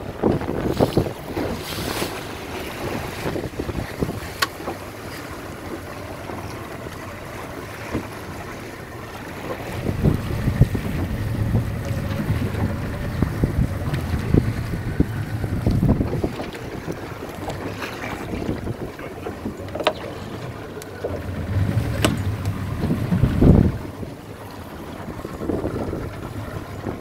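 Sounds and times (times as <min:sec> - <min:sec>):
wind buffeting microphone: 0:00.0 - 0:27.0
low steady rumble: 0:09.0 - 0:27.0.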